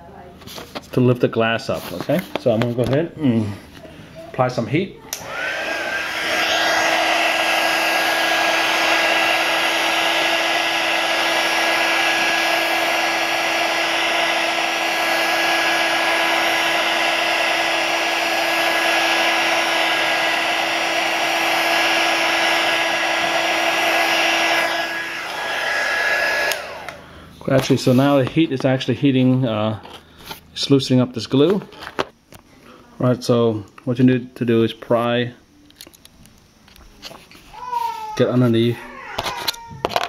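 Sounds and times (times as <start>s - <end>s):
heat gun blowing: 5.1s - 27.1s.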